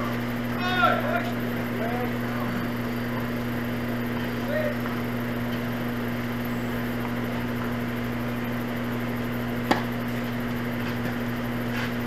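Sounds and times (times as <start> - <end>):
low hum with hiss: 0.0 - 12.0
tennis ball pop: 9.6 - 9.9.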